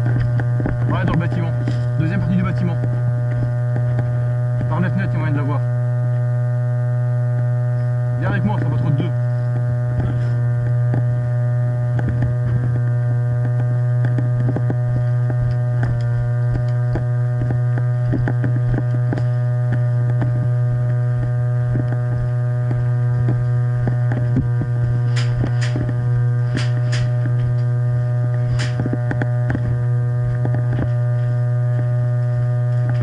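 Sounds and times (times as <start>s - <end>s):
loud electrical hum: 0.0s - 33.0s
sharp clicks: 21.7s - 27.7s.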